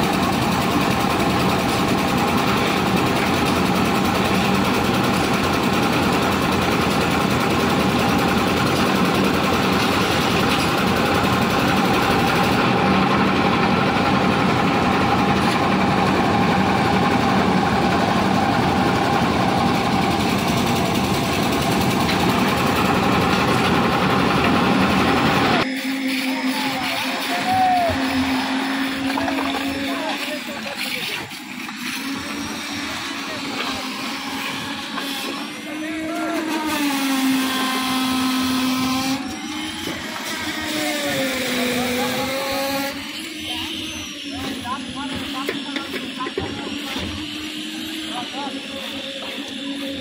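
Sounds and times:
concrete mixer diesel engine running: 0.0 - 36.8.

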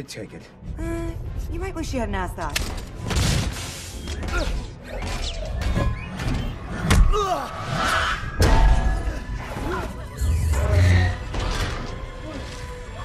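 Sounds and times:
film score music: 0.0 - 13.0.

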